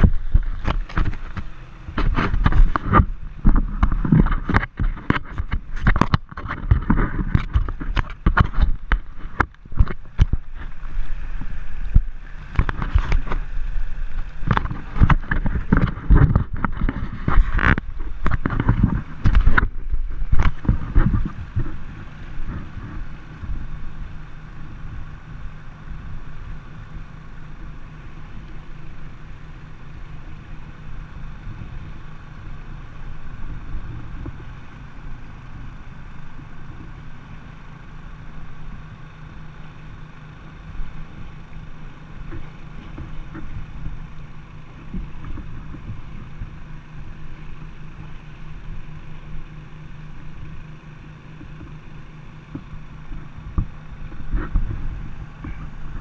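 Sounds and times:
river water rushing and splashing: 0.0 - 56.0
small engine humming: 0.0 - 56.0.

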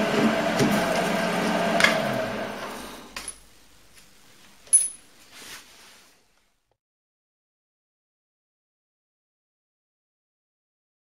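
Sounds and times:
lathe running and winding down: 0.0 - 3.1.

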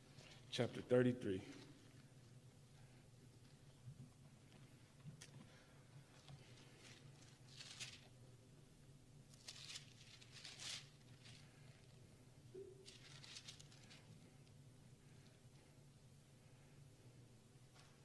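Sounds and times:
low room hum: 0.0 - 18.0
paper pages turning: 6.2 - 8.1, 9.3 - 11.6, 12.8 - 14.2.

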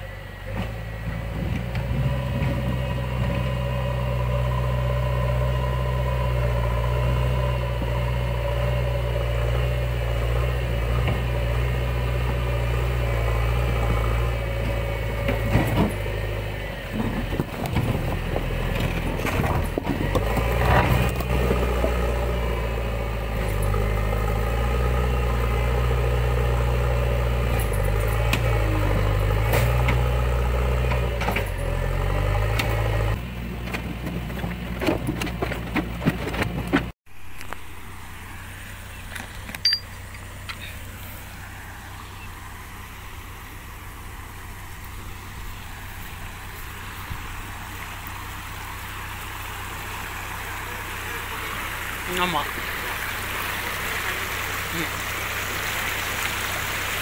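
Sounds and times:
diesel engine running: 0.0 - 57.0
logs and stones clattering: 16.9 - 22.2, 33.4 - 37.6.

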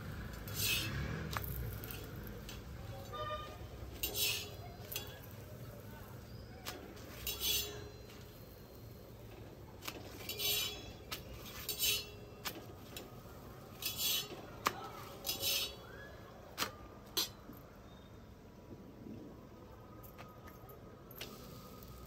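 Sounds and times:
utensils scraping on griddle: 0.2 - 16.0
utensils clinking: 0.3 - 15.9.

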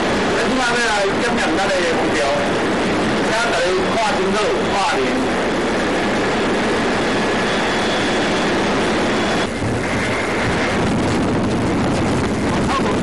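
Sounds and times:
ship engine drone: 0.0 - 13.0
wind noise on microphone: 0.0 - 13.0.

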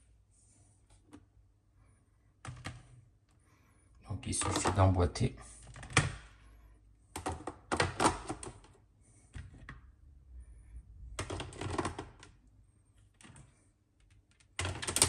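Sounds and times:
plastic trays clicking together: 7.1 - 8.8, 14.3 - 15.0.

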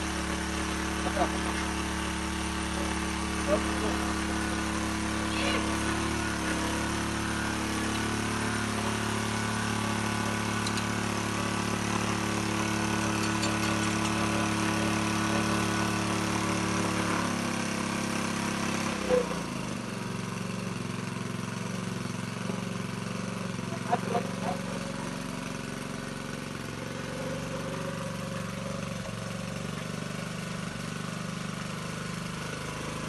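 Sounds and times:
small petrol engine running: 0.0 - 33.0
engine knock: 10.4 - 16.6.

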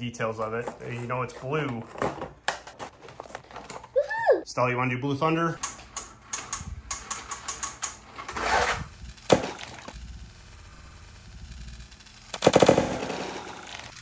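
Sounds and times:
toy truck rattling down plastic track: 5.6 - 14.0.

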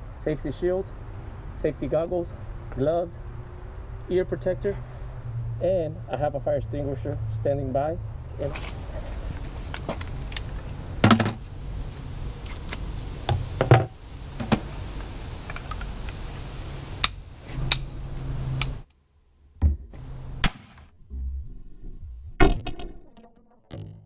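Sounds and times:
steady low hum: 16.3 - 23.0.

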